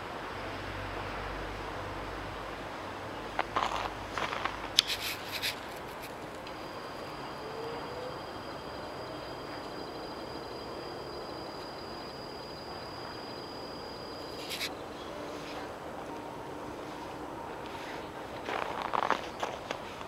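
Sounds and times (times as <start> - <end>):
railway station background noise: 0.0 - 20.0
high-pitched whine: 3.4 - 15.0.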